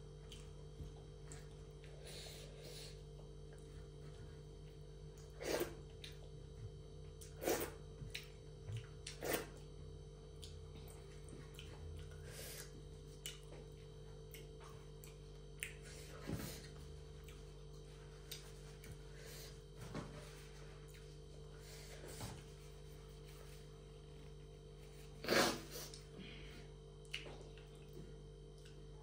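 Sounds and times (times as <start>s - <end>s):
faint electrical hum: 0.0s - 29.0s
wet chewing clicks: 10.4s - 16.0s, 27.0s - 28.9s.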